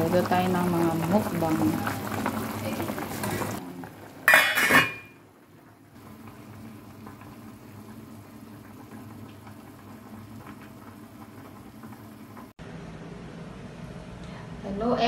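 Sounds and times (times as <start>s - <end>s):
pot lid clanking: 4.2s - 5.2s.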